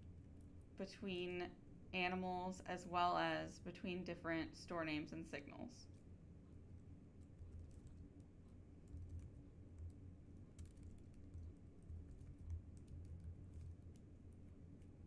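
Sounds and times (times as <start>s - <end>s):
faint keyboard typing: 0.0s - 1.3s, 5.8s - 15.0s
low background hum: 0.0s - 15.0s.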